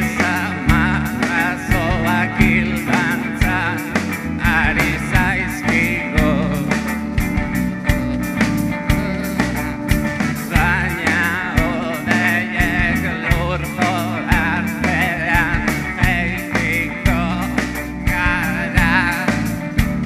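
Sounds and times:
live rock band playing: 0.0s - 20.0s.

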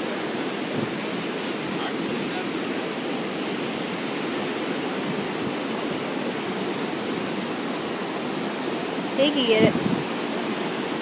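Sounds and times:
ocean surf on beach: 0.0s - 11.0s.

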